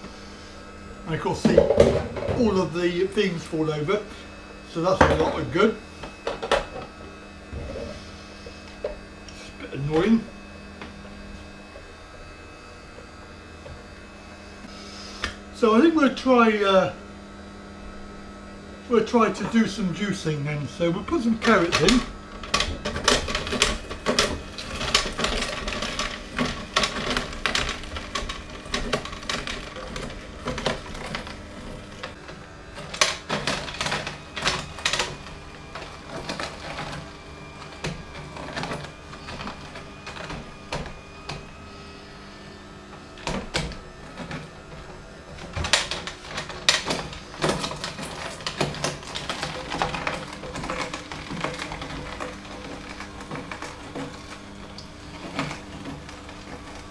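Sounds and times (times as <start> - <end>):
faint motor hum: 0.0 - 56.9
juicer crushing carrots: 0.0 - 56.9.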